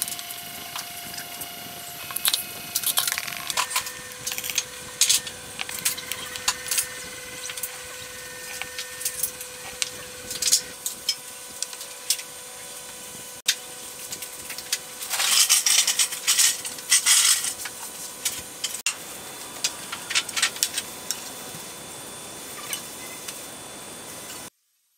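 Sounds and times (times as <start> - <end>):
faint steady whine: 0.0 - 24.5.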